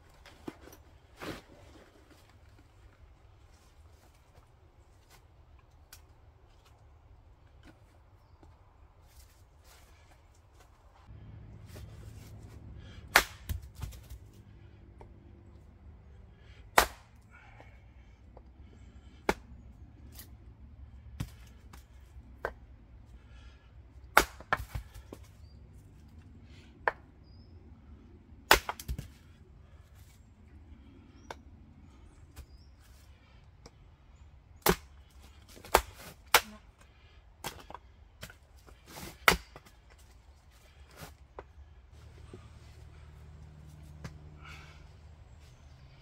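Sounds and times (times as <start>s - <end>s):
axe chopping wood: 12.8s - 14.2s, 16.7s - 17.2s, 24.0s - 25.3s, 28.5s - 29.2s, 34.6s - 36.6s, 37.4s - 39.7s.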